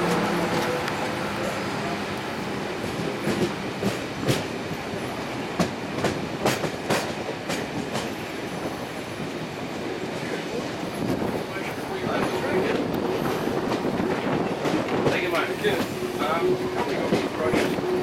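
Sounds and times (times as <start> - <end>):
train wheels clicking over rail joints: 2.8 - 9.4.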